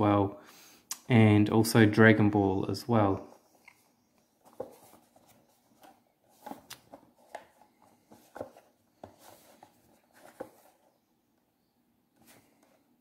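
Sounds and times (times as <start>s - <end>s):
cardboard box rustling: 4.4s - 10.9s.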